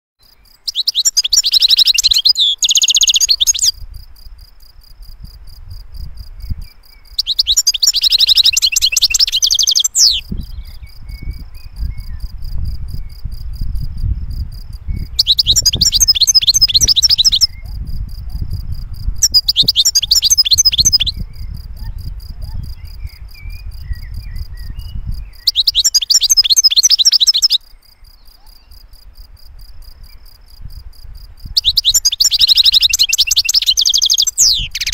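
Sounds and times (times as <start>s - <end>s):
finch twittering song: 0.2s - 3.8s, 6.4s - 13.4s, 14.8s - 18.5s, 19.2s - 28.8s, 31.5s - 34.9s.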